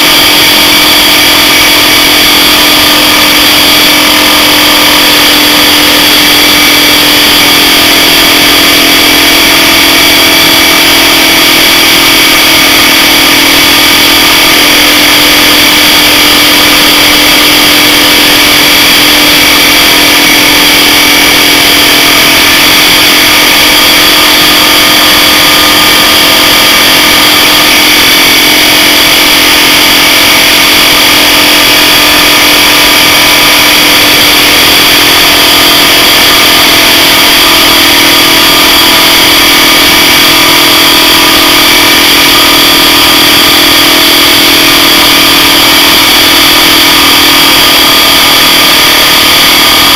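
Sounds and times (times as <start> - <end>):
refrigerant compressor humming: 2.0 - 15.1.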